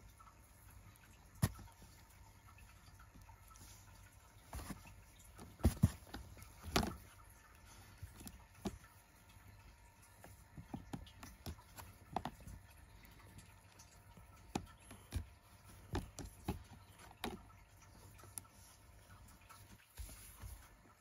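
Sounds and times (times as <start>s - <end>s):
cat bumping plastic basket: 4.6s - 7.1s.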